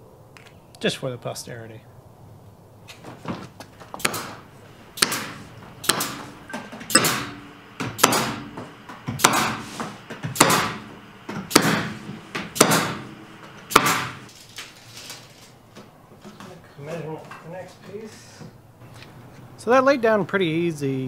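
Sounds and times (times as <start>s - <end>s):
pneumatic stapler firing: 4.0s - 4.4s, 5.0s - 14.3s.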